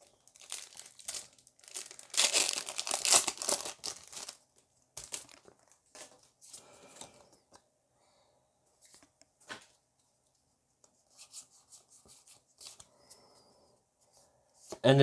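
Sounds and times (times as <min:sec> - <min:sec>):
foil wrapper crinkling and tearing: 0:00.0 - 0:04.4, 0:05.0 - 0:06.1
cards rustling: 0:00.3 - 0:07.3.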